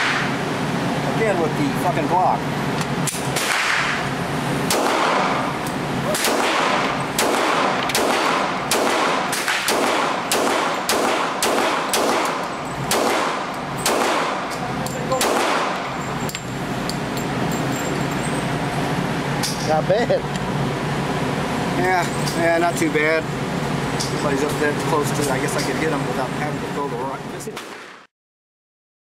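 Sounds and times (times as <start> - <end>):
pistol shots echoing indoors: 4.7 - 5.5, 6.1 - 14.6, 15.2 - 15.9, 27.6 - 28.0.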